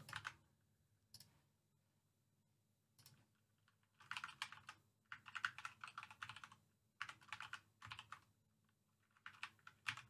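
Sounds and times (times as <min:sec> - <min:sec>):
computer keyboard typing: 0:00.0 - 0:00.4, 0:03.0 - 0:08.3, 0:08.9 - 0:10.0.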